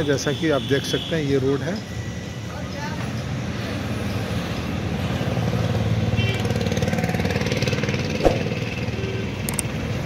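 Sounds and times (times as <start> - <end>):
short sharp knock: 8.2 - 8.6.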